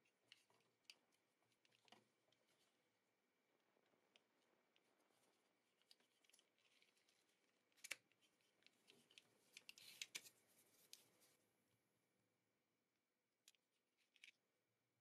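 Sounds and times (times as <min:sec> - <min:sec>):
faint clicks and scraping: 0:00.0 - 0:02.8, 0:03.6 - 0:11.4.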